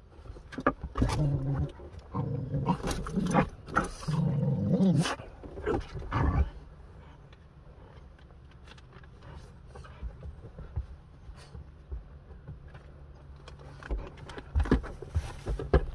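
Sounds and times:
dog growling: 0.9s - 6.7s.

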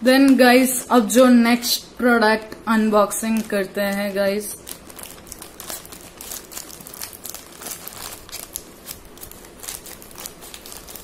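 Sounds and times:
plastic bag crinkling: 3.0s - 11.0s
scissors cutting plastic: 3.2s - 11.0s.

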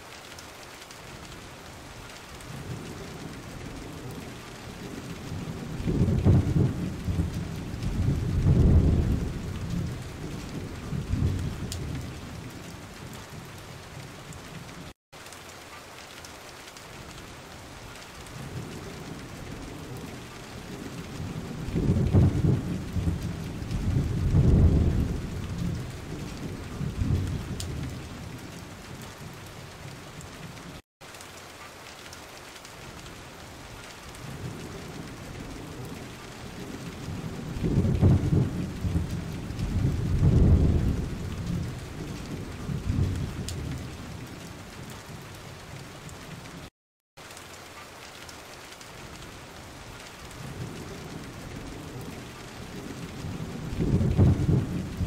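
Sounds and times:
steady rain hiss: 0.0s - 55.0s
thunder rumbling: 2.5s - 14.7s, 18.3s - 30.6s, 34.2s - 46.2s, 50.4s - 55.0s.

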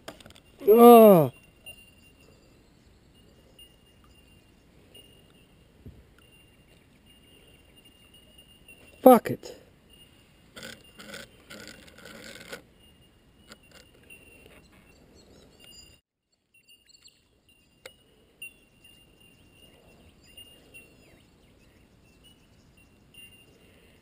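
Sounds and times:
birds chirping: 0.5s - 9.1s, 16.6s - 24.0s.

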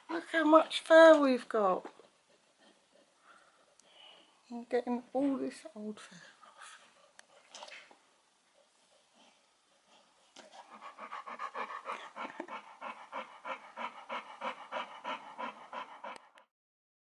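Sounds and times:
dog panting rapidly: 1.8s - 3.8s, 8.7s - 16.5s.

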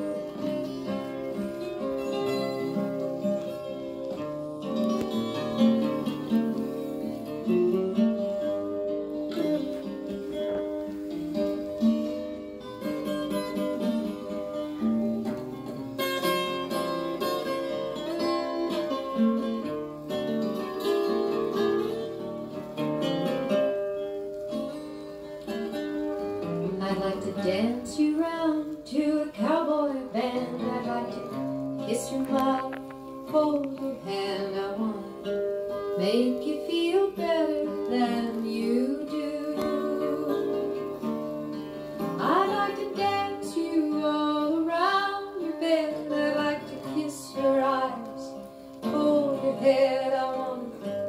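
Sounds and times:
acoustic guitar: 0.0s - 51.0s
person singing: 26.6s - 35.2s, 35.9s - 41.0s, 42.0s - 51.0s.

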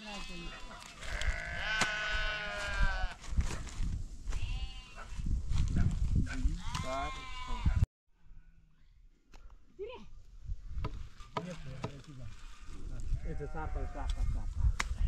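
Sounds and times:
sheep bleating: 0.0s - 3.2s, 4.3s - 5.1s, 6.6s - 7.8s, 13.2s - 14.1s.

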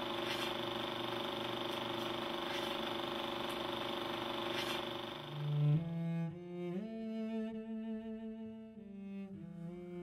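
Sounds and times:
film projector whirring: 0.0s - 5.8s
constant hum: 0.0s - 7.0s.

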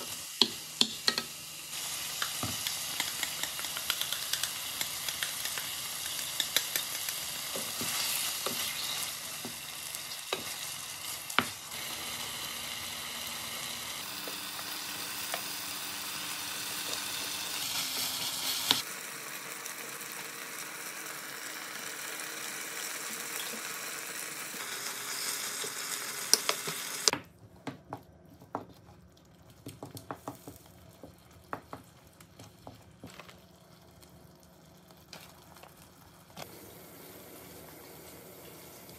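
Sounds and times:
meat sizzling in a frying pan: 0.0s - 27.1s.

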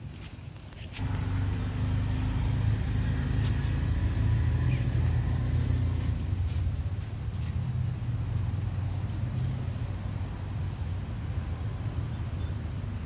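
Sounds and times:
vehicle engine rumbling: 0.9s - 13.0s.

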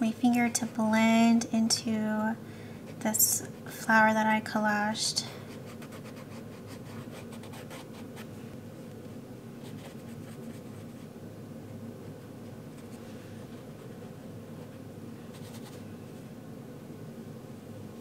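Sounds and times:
steady low hum: 0.0s - 18.0s
brush scratching on paper: 5.6s - 8.3s, 9.6s - 11.1s, 12.7s - 15.8s.

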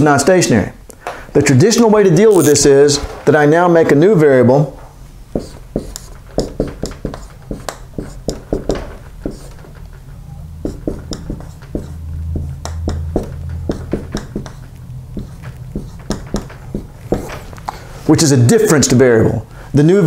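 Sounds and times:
marker writing on whiteboard: 5.3s - 10.0s, 10.6s - 18.7s.

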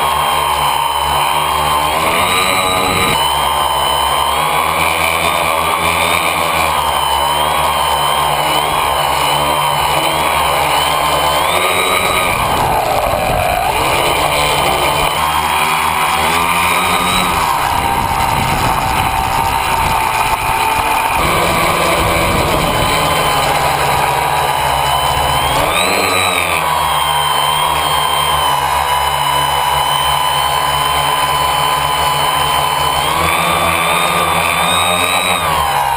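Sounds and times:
propellers buzzing: 0.0s - 35.9s.

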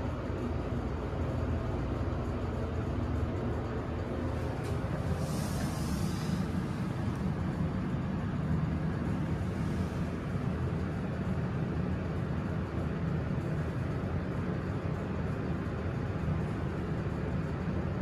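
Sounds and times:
elevator cab rumble: 0.0s - 18.0s.

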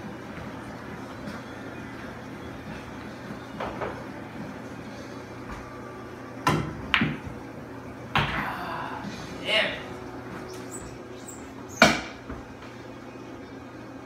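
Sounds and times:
cue striking cue ball: 6.4s - 7.4s, 11.8s - 12.3s
pool balls clicking: 6.4s - 8.6s
ball knocking on table: 6.5s - 7.4s.

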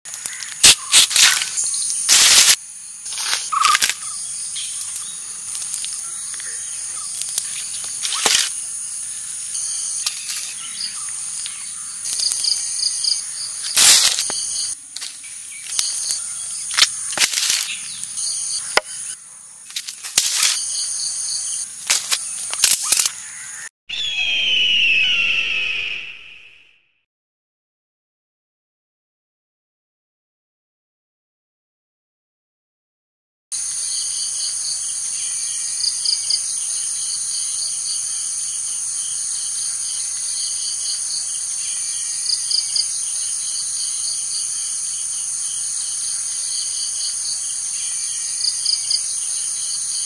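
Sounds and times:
insects chirring: 0.1s - 26.1s, 33.6s - 50.0s
footsteps on dry leaves: 0.2s - 8.6s, 10.0s - 18.1s, 19.7s - 20.7s, 21.8s - 23.5s
sweeping sound effect: 24.0s - 26.8s.

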